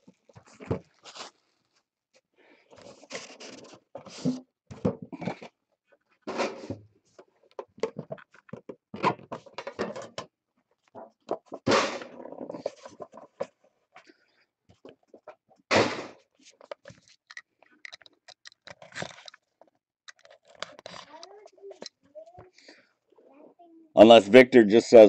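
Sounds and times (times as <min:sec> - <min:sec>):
packaging clicks taps and rustles: 0:16.5 - 0:22.0.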